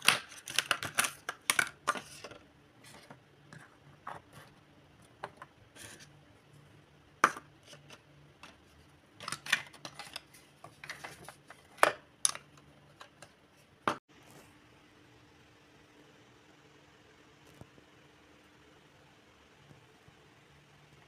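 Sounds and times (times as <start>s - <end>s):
plastic toys clattering on table: 0.0s - 3.1s, 7.2s - 13.3s.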